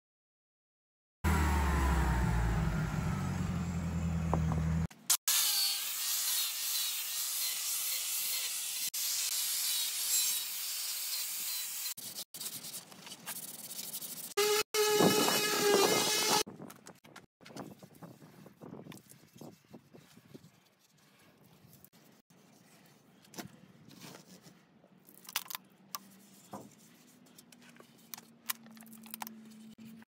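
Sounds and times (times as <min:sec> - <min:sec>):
angle grinder grinding wood: 0:14.2 - 0:16.5.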